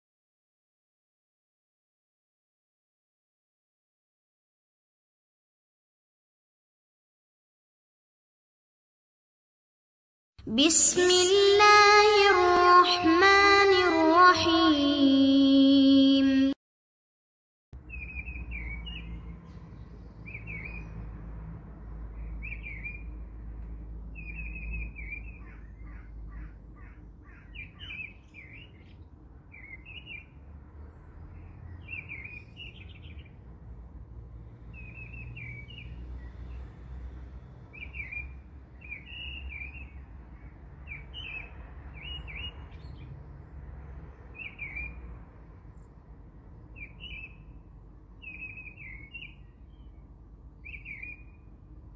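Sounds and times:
birds chirping: 0:17.8 - 0:21.2, 0:22.1 - 0:33.4, 0:34.7 - 0:36.6, 0:37.7 - 0:43.1, 0:46.6 - 0:47.6, 0:48.2 - 0:51.5.

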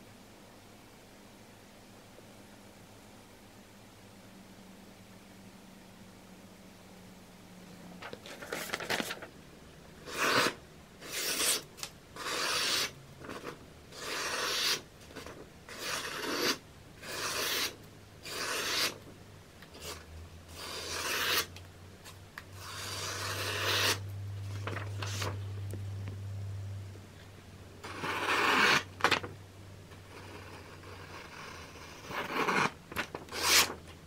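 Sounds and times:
low steady hum: 0:00.0 - 0:34.0
knife slicing paper: 0:10.0 - 0:11.6, 0:15.7 - 0:19.0, 0:20.6 - 0:21.5, 0:32.1 - 0:33.8.

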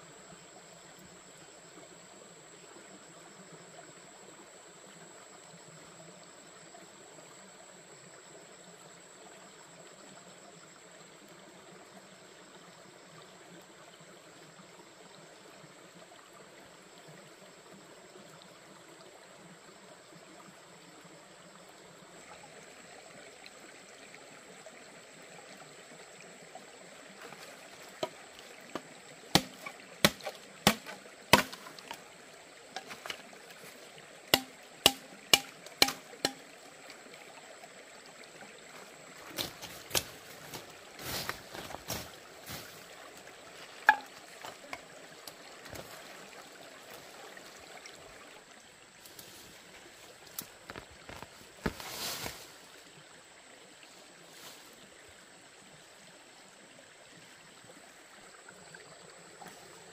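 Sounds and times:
stream water running: 0:00.0 - 0:59.9
sharp knocks or chops: 0:29.4 - 0:32.0, 0:34.4 - 0:36.4.

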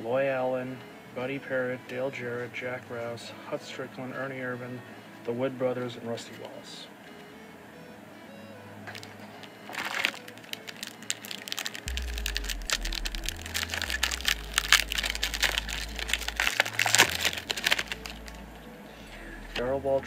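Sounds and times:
foil pack crinkling and tearing: 0:09.7 - 0:18.4.

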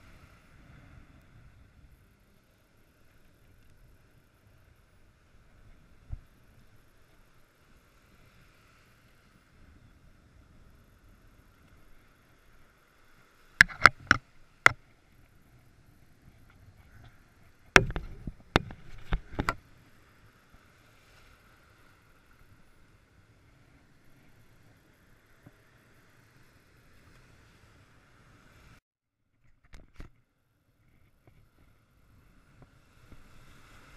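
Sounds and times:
sharp knocks: 0:17.8 - 0:18.7.

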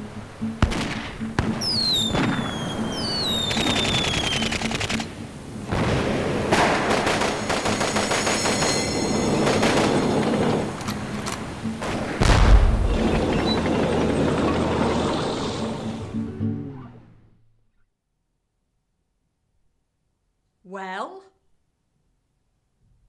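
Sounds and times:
explosions: 0:00.6 - 0:05.0, 0:05.7 - 0:10.8, 0:11.8 - 0:15.2
falling shell whistles: 0:01.6 - 0:04.7, 0:07.2 - 0:10.3
machine-gun fire: 0:03.4 - 0:05.1, 0:05.7 - 0:08.7.

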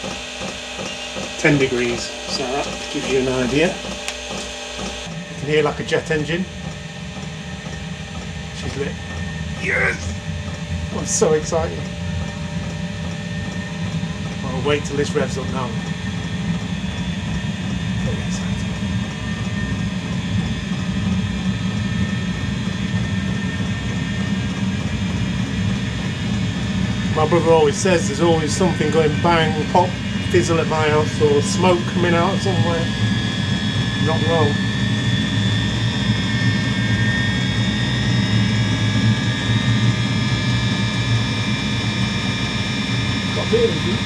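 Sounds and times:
fan whine: 0:00.0 - 0:44.0
heater burner roaring: 0:00.0 - 0:44.0.

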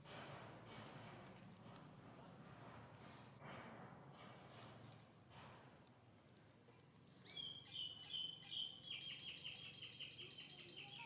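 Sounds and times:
songbird singing: 0:07.2 - 0:11.0.

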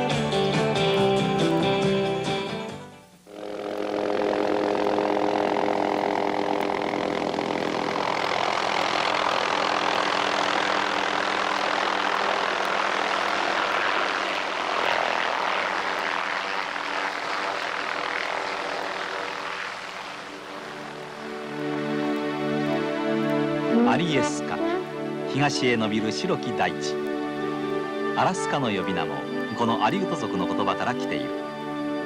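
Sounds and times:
loud rotor wash rush: 0:03.3 - 0:21.5
helicopter rotor and engine: 0:03.3 - 0:32.0.

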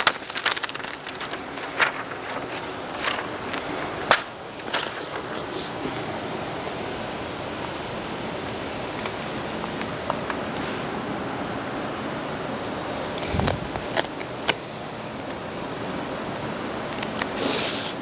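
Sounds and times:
adhesive membrane crackling: 0:00.0 - 0:05.7
background hiss: 0:00.0 - 0:18.0.

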